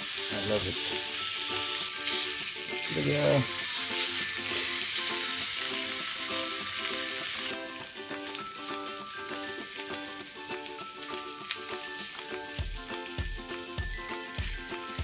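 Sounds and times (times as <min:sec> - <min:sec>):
fish sizzling in a frying pan: 0:00.0 - 0:15.0
background music with bass beat: 0:12.6 - 0:15.0.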